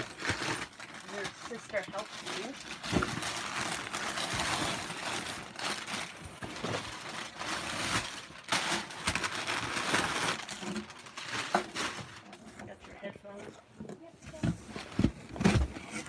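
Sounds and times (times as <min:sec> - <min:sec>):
cardboard scraping and rustling: 0:13.4 - 0:16.0.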